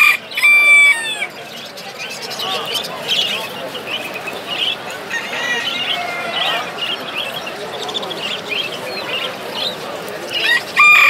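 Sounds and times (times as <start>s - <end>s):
chicks cheeping: 0.0s - 11.0s
crowd chatter: 0.0s - 11.0s
rooster crowing: 5.0s - 6.7s, 10.4s - 11.0s.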